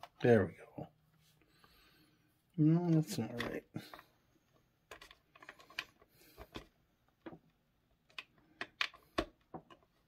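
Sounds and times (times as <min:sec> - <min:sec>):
plastic bricks clicking into place: 0:08.0 - 0:09.9.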